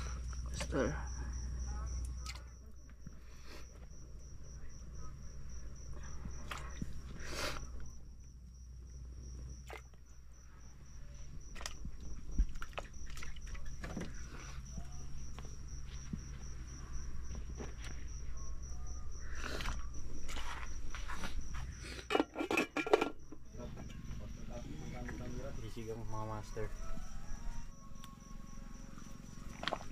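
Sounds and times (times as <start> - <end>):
insect trilling: 0.0 - 22.1, 23.2 - 29.9.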